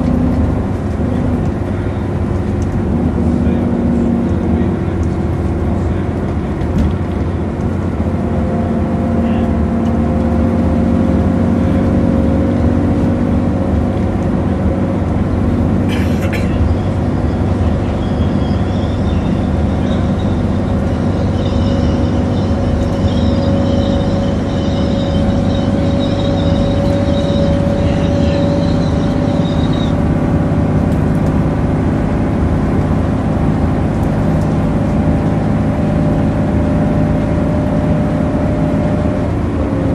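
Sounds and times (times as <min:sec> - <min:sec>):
bus diesel engine drone: 0:00.0 - 0:39.9
high whine: 0:16.0 - 0:30.6.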